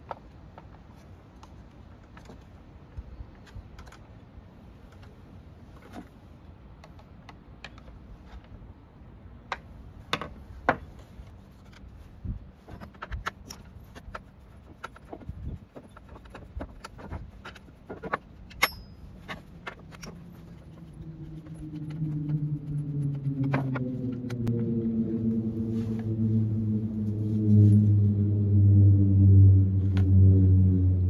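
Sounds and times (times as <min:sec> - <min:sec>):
socket wrench clinking on metal: 0:18.5 - 0:19.3.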